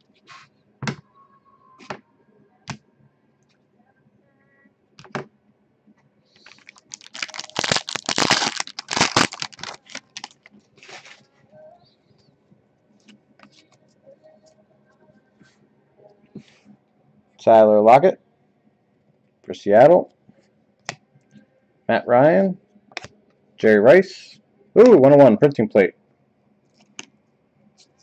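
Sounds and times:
foil wrapper crinkling and tearing: 6.4 - 11.2.

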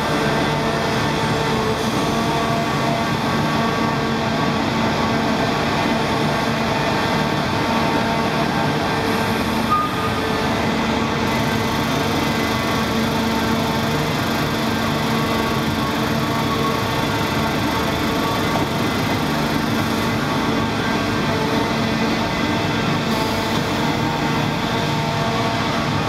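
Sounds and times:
diesel engine and hydraulics drone: 0.0 - 26.0.

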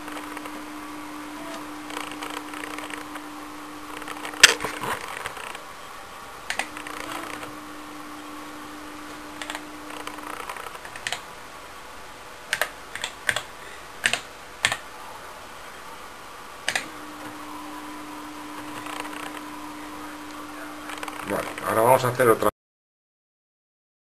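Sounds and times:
floppy disk drive humming: 0.0 - 22.5.

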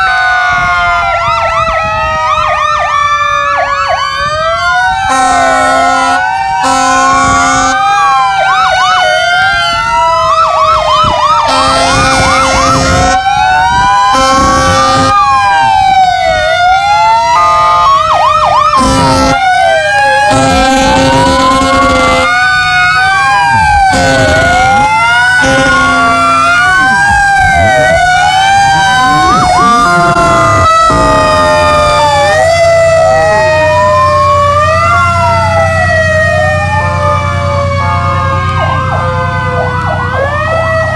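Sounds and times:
sirens wailing: 0.0 - 40.9
short horn blasts: 5.1 - 7.8, 11.5 - 13.2, 14.1 - 15.1, 18.8 - 19.4, 20.3 - 22.3, 23.6 - 26.4
vehicle engine rumbling: 10.7 - 40.9.

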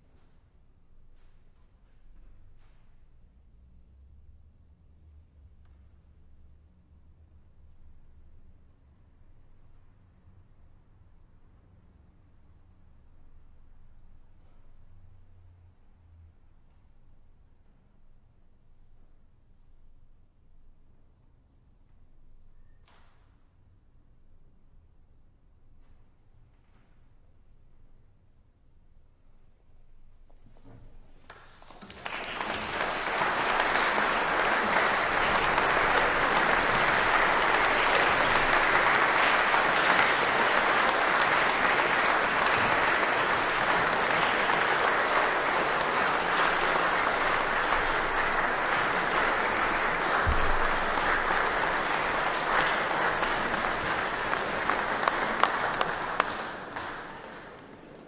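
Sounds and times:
audience applauding: 31.3 - 58.0.

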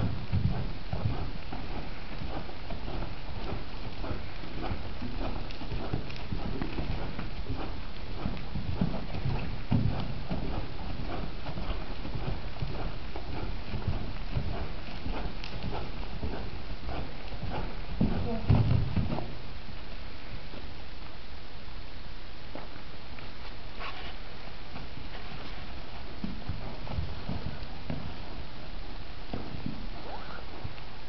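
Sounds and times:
horse hoofbeats on dirt: 0.0 - 20.6, 23.7 - 30.9.

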